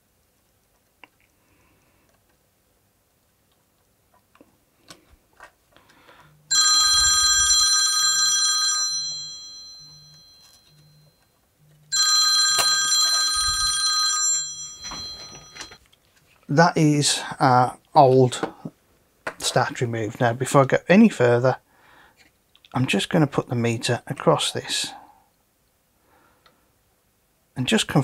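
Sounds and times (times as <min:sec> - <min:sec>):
telephone bell ringing: 0:06.5 - 0:11.3, 0:11.9 - 0:15.8.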